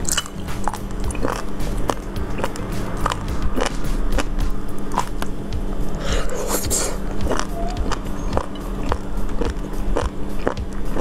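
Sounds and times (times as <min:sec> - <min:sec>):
wet chewing and mouth clicks: 0:00.0 - 0:05.3, 0:06.0 - 0:11.0.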